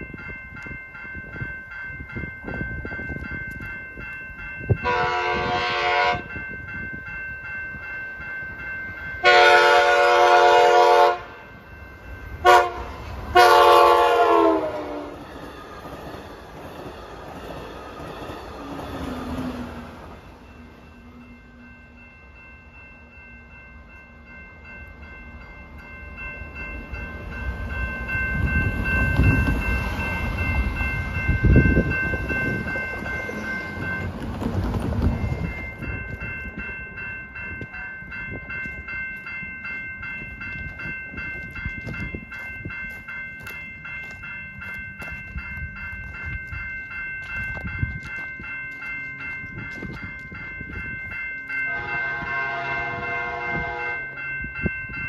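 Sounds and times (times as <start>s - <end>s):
crossing bell ringing: 0.0s - 55.0s
train horn: 4.8s - 6.3s, 9.2s - 11.4s, 12.4s - 15.2s, 51.7s - 54.2s.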